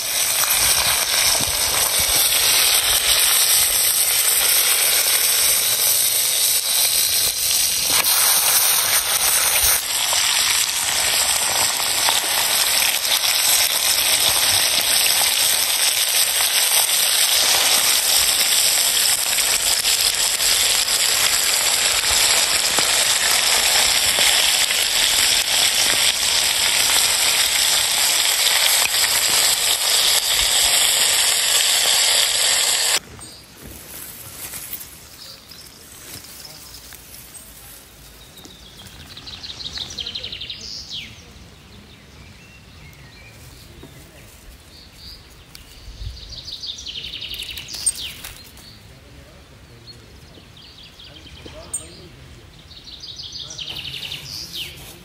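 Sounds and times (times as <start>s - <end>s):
steaks sizzling in hot oil: 0.0s - 33.0s.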